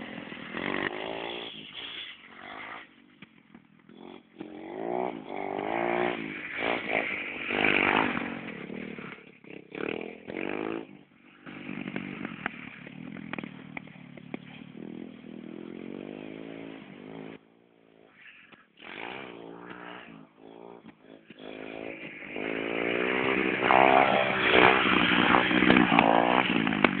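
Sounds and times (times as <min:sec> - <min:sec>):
dirt bike engine revving: 0:00.0 - 0:27.0.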